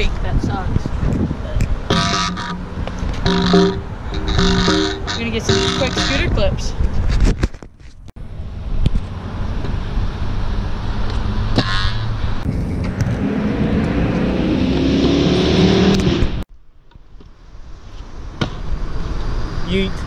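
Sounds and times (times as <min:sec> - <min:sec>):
rising hum: 0:01.9 - 0:06.2, 0:12.4 - 0:16.4
scooter wheels rumbling on concrete: 0:01.9 - 0:08.0.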